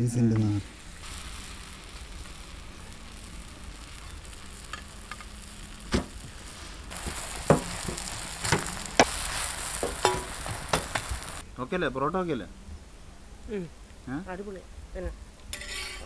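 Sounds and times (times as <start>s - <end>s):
flatbread sizzling on griddle: 0.0s - 11.4s, 15.5s - 16.0s
metal spatula tapping pan: 9.8s - 11.2s.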